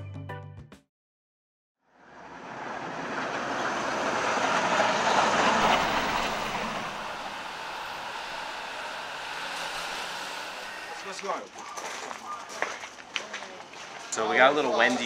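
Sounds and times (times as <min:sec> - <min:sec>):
van driving over gravel: 0:02.5 - 0:14.5.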